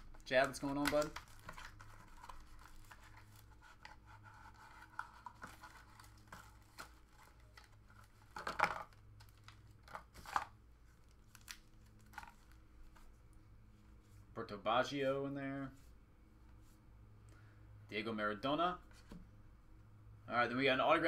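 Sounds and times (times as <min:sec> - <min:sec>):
plastic wrapper crinkling and tearing: 0:00.0 - 0:03.6, 0:04.6 - 0:12.6.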